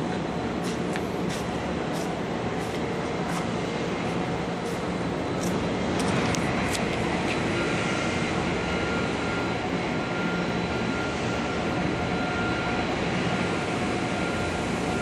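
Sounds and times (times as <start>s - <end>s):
faint high whine: 0.0s - 15.0s
machinery drone: 0.0s - 15.0s.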